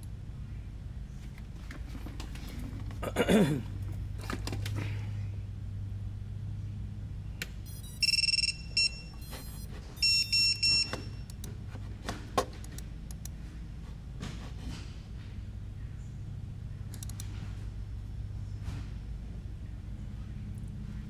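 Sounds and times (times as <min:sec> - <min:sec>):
low steady hum: 0:00.0 - 0:21.0
electronic beeps: 0:07.7 - 0:11.3
sharp click: 0:16.9 - 0:17.3.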